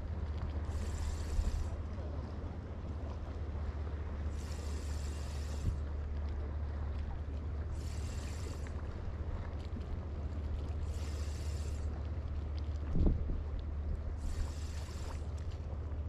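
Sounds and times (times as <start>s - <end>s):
sea water washing: 0.0s - 16.0s
wind buffeting microphone: 12.8s - 14.6s.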